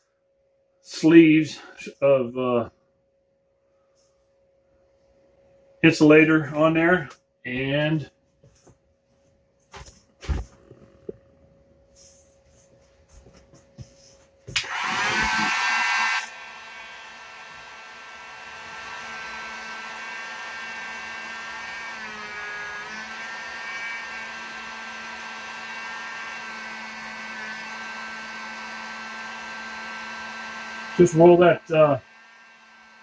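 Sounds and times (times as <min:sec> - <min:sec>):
fan whine: 0:03.8 - 0:33.0
heat gun blowing: 0:14.5 - 0:33.0.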